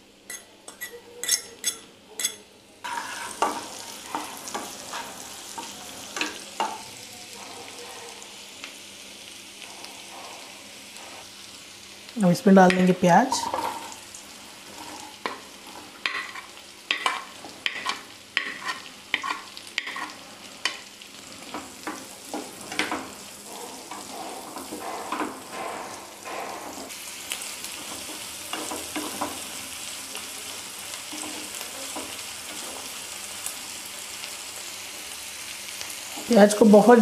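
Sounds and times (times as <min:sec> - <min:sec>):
onion sizzling in a pan: 0:00.0 - 0:37.0
spatula knocking and scraping pan: 0:00.3 - 0:06.8, 0:12.6 - 0:14.0, 0:14.6 - 0:27.0, 0:27.7 - 0:29.5.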